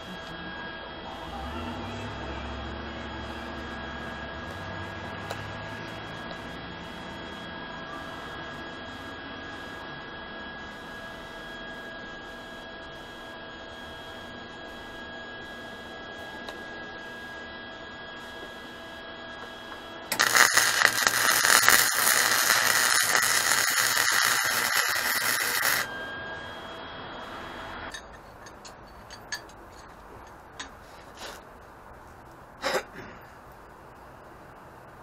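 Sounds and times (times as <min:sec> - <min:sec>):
steady hum: 0:00.0 - 0:29.4
welder crackling: 0:20.1 - 0:25.9.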